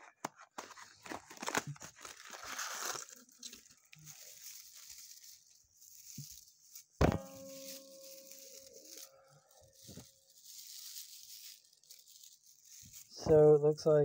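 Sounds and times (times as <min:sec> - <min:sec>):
paper shred filler rustling: 0:00.9 - 0:13.4
sharp knock: 0:07.0 - 0:07.8.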